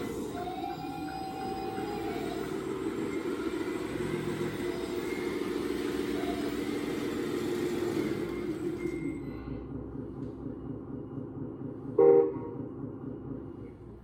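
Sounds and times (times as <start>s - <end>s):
toy truck motor hum: 0.0s - 9.2s.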